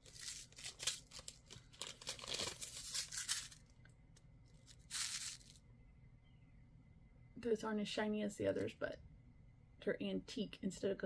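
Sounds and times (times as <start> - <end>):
plastic packaging crinkling: 0.0 - 3.8, 4.5 - 5.6.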